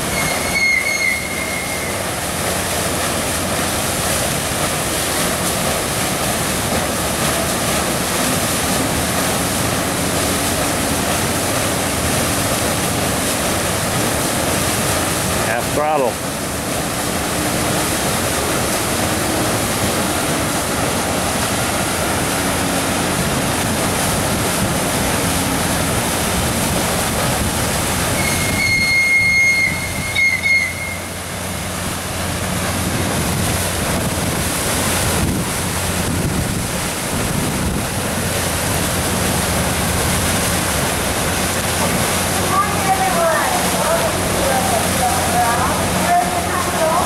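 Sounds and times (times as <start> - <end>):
high squeal: 0.0 - 2.0, 28.2 - 31.2
propeller churning water: 0.0 - 47.0.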